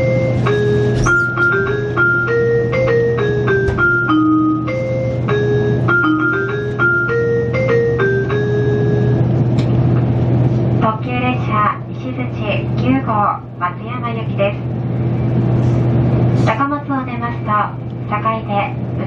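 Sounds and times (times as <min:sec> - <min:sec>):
train low hum: 0:00.0 - 0:19.0
electric piano chime melody: 0:00.6 - 0:09.2.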